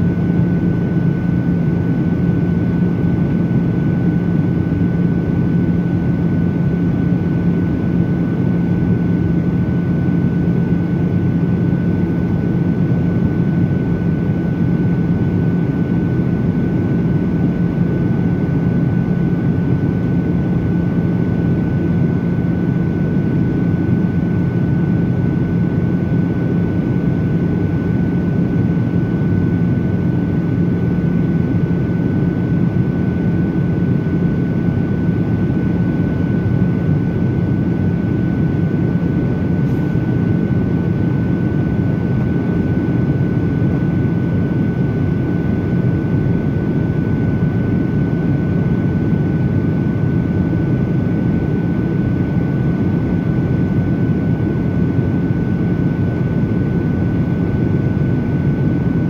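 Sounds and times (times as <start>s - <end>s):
jet engines droning: 0.0s - 59.0s.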